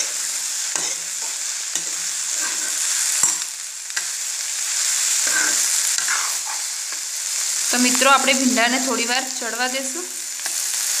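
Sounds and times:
okra sizzling in hot oil: 0.0s - 11.0s
spoon stirring and scraping: 0.8s - 3.4s, 5.2s - 7.0s.

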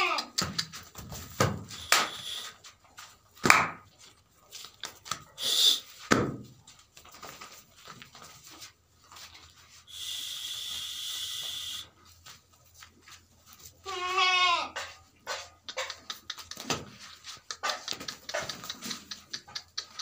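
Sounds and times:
goat calls: 0.0s - 0.7s, 1.7s - 2.7s, 5.4s - 6.0s, 9.9s - 12.0s, 13.8s - 16.6s
goats rustling in straw: 1.0s - 5.4s, 6.5s - 15.2s
steady hiss: 9.9s - 11.9s.

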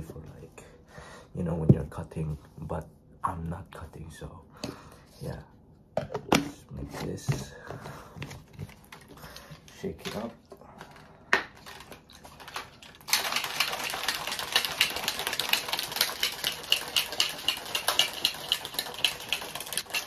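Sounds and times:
shaker bottle rattling: 10.9s - 20.0s.

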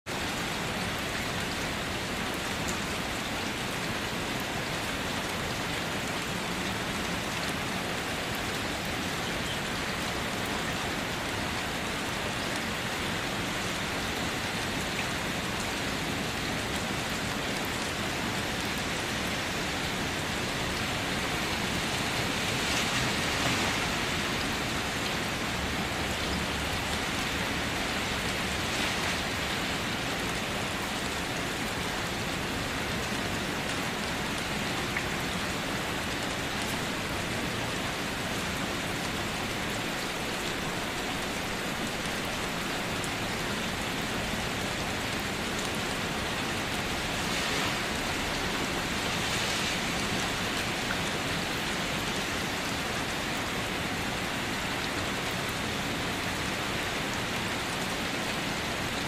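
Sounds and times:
heavy rain splashing on ground: 0.1s - 59.0s.

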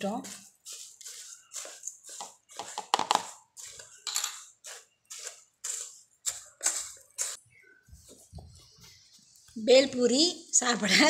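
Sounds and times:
spoon scraping puffed rice in bowl: 0.0s - 7.8s.

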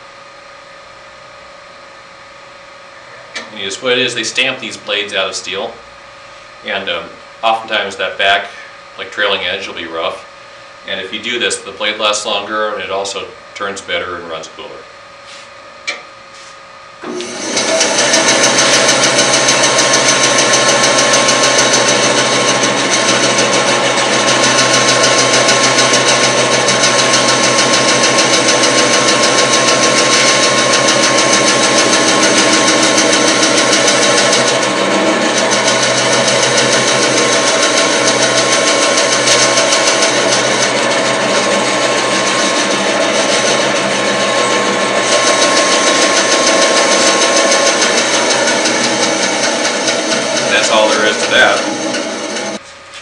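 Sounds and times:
bandsaw running with whine: 0.0s - 14.9s, 17.0s - 52.7s
stone scraping saw blade: 28.9s - 34.6s, 35.3s - 52.6s.

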